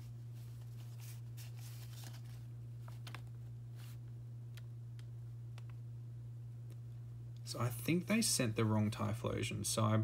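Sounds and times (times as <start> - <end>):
cards brushing together: 0.0 - 4.1
steady low hum: 0.0 - 10.0.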